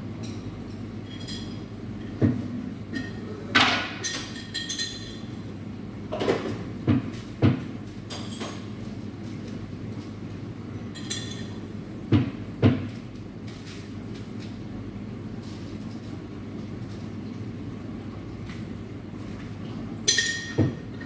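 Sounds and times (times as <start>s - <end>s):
cups and glassware clinking: 0.2s - 5.3s, 10.9s - 11.6s, 20.0s - 21.0s.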